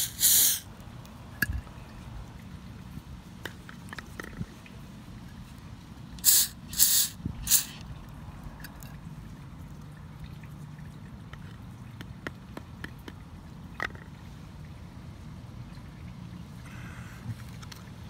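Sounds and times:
aerosol can spraying: 0.0 - 0.6, 6.2 - 7.8.

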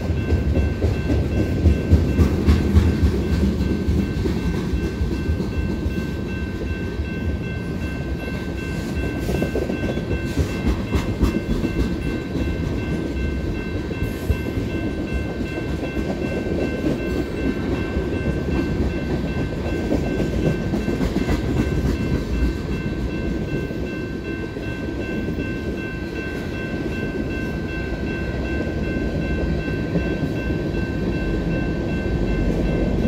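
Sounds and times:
freight train wheels rumbling: 0.0 - 33.0
high ringing bell tone: 3.2 - 33.0.

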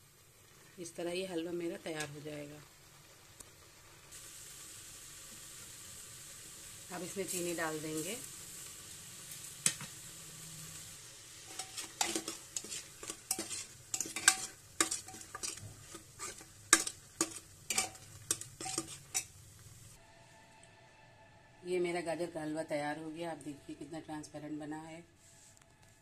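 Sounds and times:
soft sizzle of cooking: 0.0 - 26.0
metal ladle scraping metal pot: 11.4 - 19.4.

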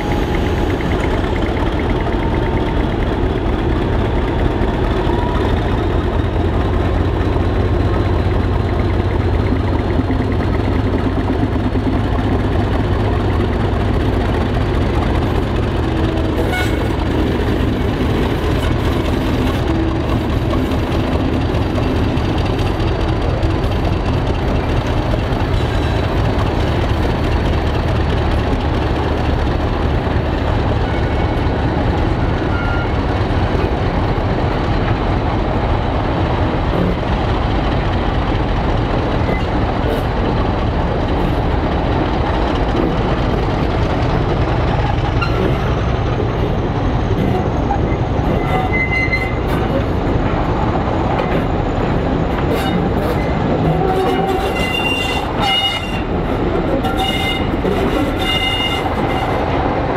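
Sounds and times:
diesel locomotive engine running: 0.0 - 59.9.

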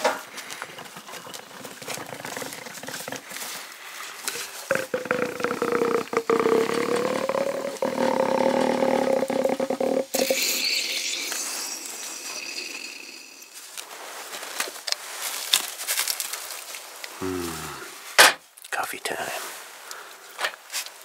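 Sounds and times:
air hissing through coffee grounds: 0.0 - 13.9
plunger seal squeaking: 0.5 - 3.2, 4.7 - 13.6.

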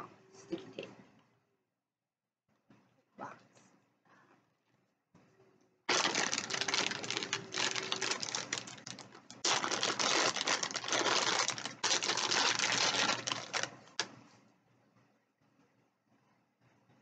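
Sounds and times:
packaging crinkling: 5.9 - 14.1.

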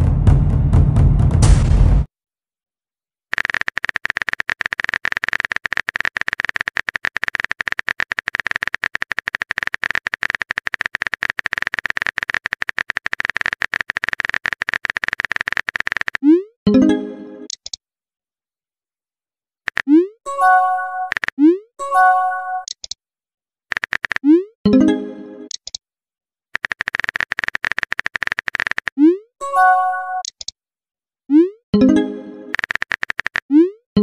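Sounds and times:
keyboard typing clicks: 3.3 - 16.3, 17.5 - 17.8, 19.7 - 20.1, 21.0 - 21.5, 23.7 - 24.4, 25.5 - 25.8, 26.6 - 29.1, 30.2 - 30.6, 31.8 - 33.7.

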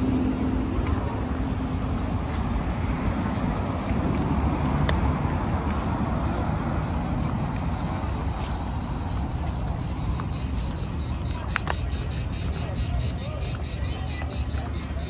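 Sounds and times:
road traffic rumble: 0.0 - 15.0
cicadas singing: 5.1 - 15.0.

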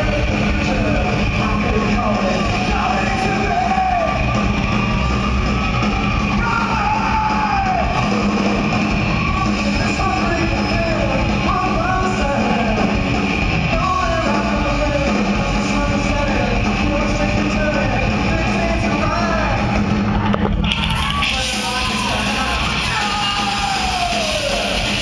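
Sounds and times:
drums: 0.0 - 25.0
upright bass: 0.0 - 25.0.

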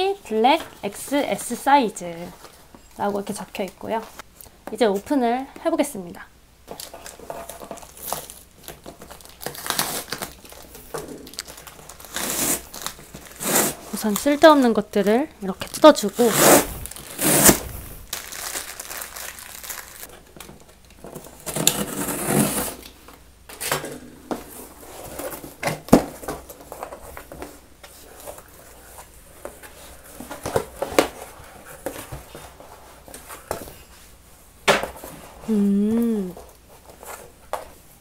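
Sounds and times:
plastic packaging tearing: 6.8 - 14.6, 15.6 - 20.1.

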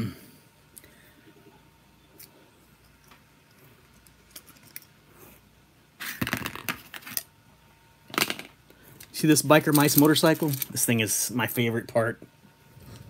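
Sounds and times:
plastic toys clattering: 6.0 - 7.3, 8.1 - 8.6, 9.5 - 10.9.

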